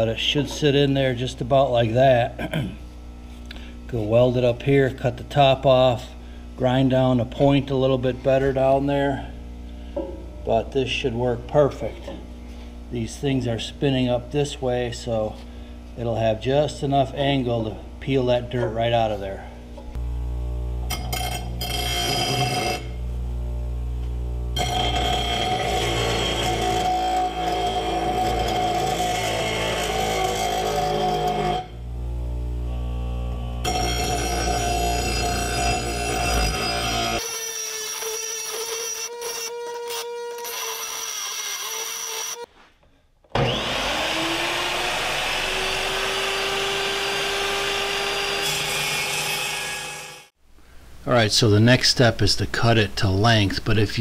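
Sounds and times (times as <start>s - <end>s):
bench grinder motor hum: 19.9s - 42.5s, 43.4s - 50.3s
steel bar grinding on wheel: 20.9s - 23.0s, 24.6s - 31.8s, 33.6s - 37.2s.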